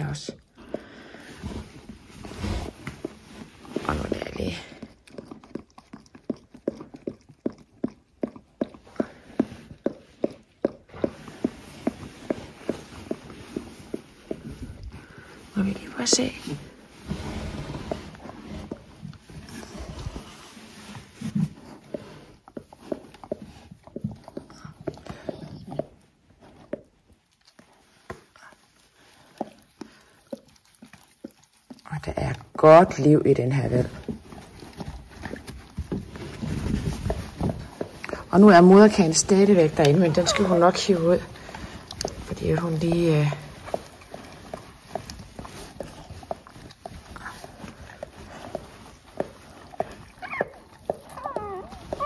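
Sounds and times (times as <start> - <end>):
dog licking puppy: 0.0 - 16.8, 18.2 - 52.0
dog licking wet smacking: 3.7 - 13.2, 21.7 - 33.2.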